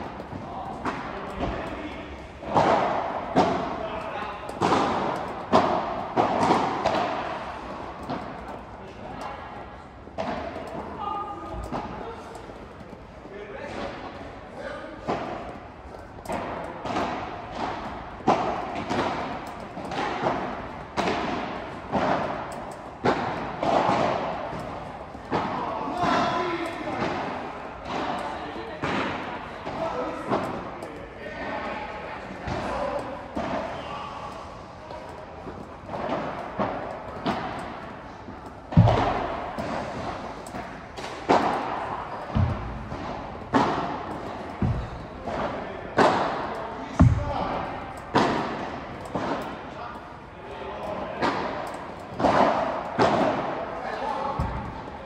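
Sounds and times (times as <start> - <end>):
balls bouncing on court: 0.0 - 55.0
rackets striking balls: 0.0 - 55.0
ball thudding on court: 38.7 - 41.7, 42.3 - 48.6.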